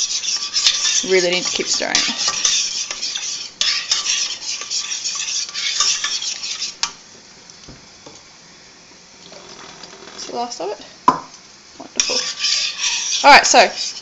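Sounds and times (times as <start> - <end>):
spoon scraping metal saucepan: 0.0 - 7.0, 11.9 - 14.0.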